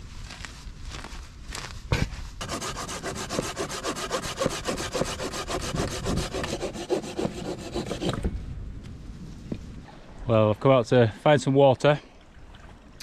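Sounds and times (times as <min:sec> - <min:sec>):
hand saw cutting log: 0:02.4 - 0:08.2.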